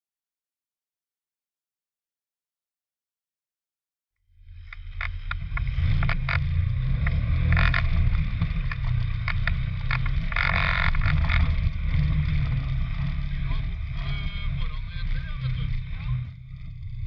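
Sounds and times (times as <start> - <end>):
vehicle engine running: 4.3 - 17.0
vehicle knocks and rattles: 5.0 - 13.9.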